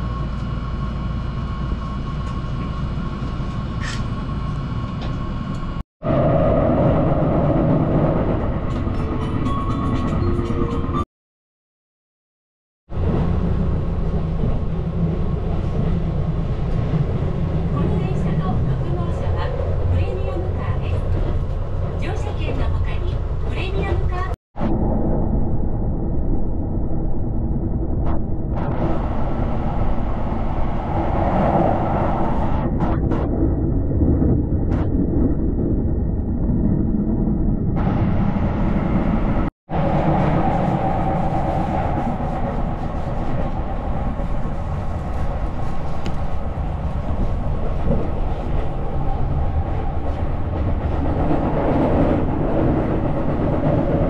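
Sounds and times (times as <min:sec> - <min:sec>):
train wheels rumbling on rails: 0:12.9 - 0:24.4, 0:34.0 - 0:54.0.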